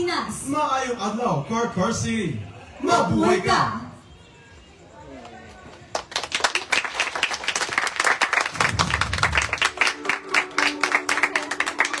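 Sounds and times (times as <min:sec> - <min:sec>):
audience clapping: 0:05.7 - 0:12.0.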